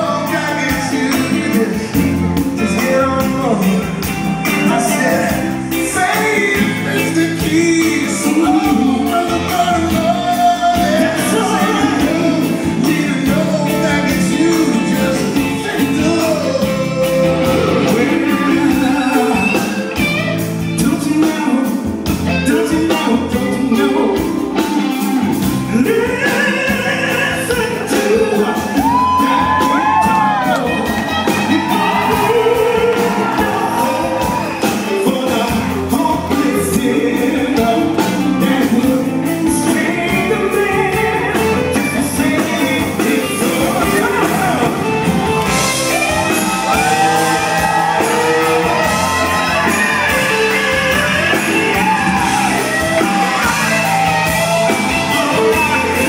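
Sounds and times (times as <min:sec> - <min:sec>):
drum kit beat: 0:00.0 - 0:56.0
electric guitars: 0:00.0 - 0:56.0
man singing: 0:00.0 - 0:56.0.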